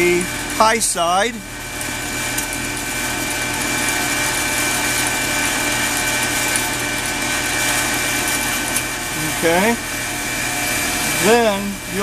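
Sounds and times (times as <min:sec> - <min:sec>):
heat pump humming: 0:00.0 - 0:12.0
steady high whine: 0:08.0 - 0:12.0.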